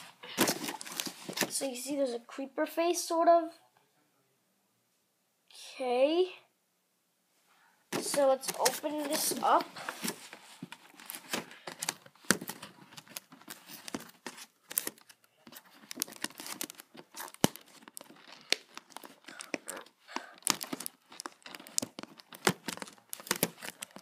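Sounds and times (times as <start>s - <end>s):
plastic crinkling: 0.0s - 1.6s, 8.0s - 24.0s
fingers tearing cardboard box: 11.0s - 24.0s.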